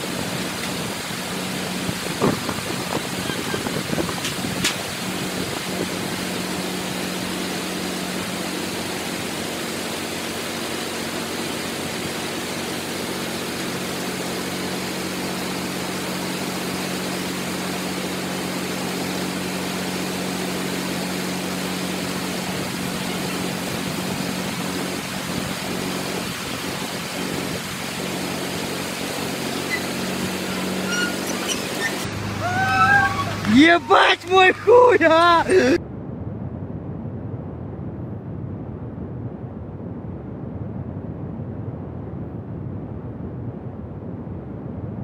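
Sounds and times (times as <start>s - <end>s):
bulldozer diesel engine running: 0.0s - 35.8s
constant hiss: 21.4s - 35.8s.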